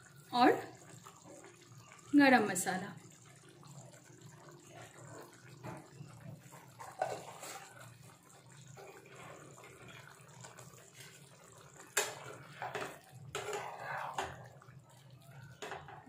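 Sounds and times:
curry bubbling in a pan: 0:00.0 - 0:16.0.

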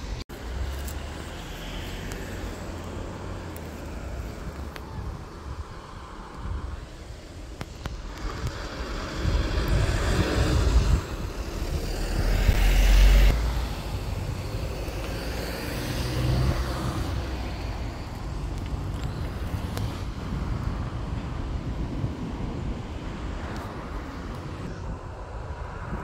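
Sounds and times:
cars driving past: 0:07.8 - 0:26.0.

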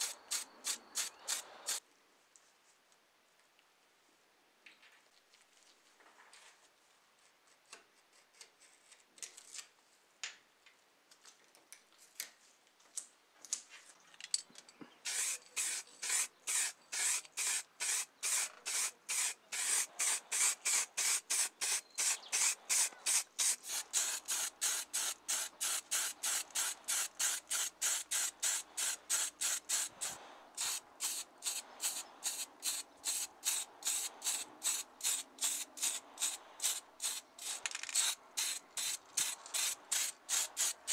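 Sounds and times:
spray paint bursts: 0:00.0 - 0:01.8, 0:15.1 - 0:40.9.

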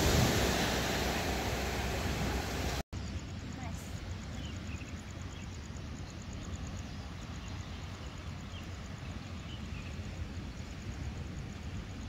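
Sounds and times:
distant surf on rocks: 0:00.0 - 0:02.8
wind: 0:00.0 - 0:12.0.

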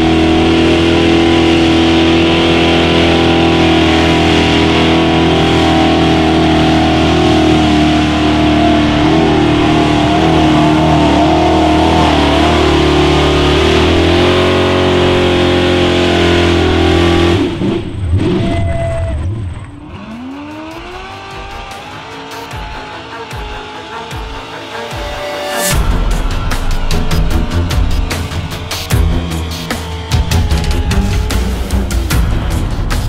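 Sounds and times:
truck engine revving high: 0:00.0 - 0:33.0
jumble of quieter sounds: 0:05.1 - 0:15.9, 0:17.6 - 0:33.0.

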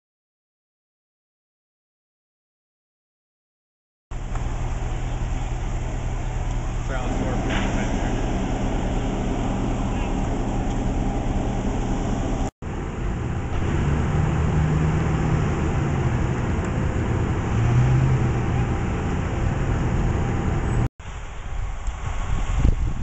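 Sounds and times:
diesel fire engines rumbling: 0:04.1 - 0:23.0.

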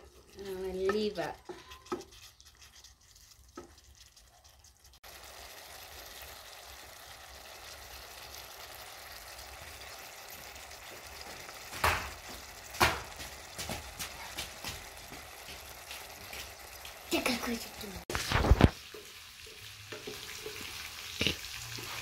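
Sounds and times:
stew bubbling in a pan: 0:00.0 - 0:22.0.

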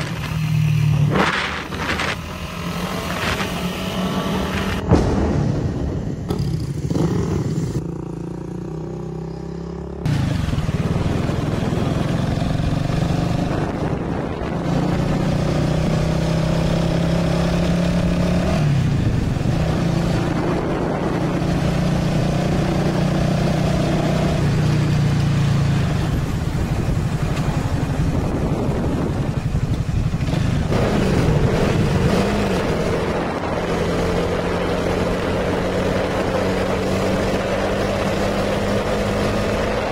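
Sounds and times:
motorcycle engine accelerating: 0:00.0 - 0:39.9
wind rush on microphone: 0:10.1 - 0:39.9.

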